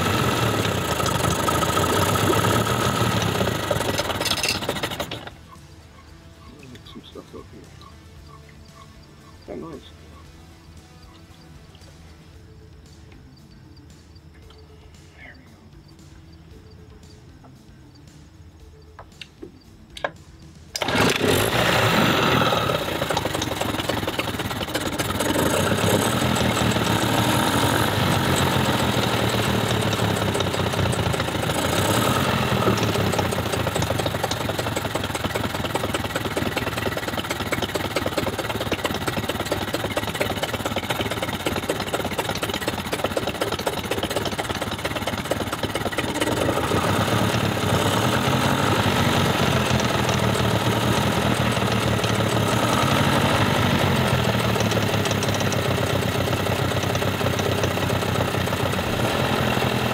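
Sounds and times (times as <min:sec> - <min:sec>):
outboard motor running: 0:00.0 - 0:12.2, 0:20.0 - 0:59.9
starter clicks: 0:18.8 - 0:26.9.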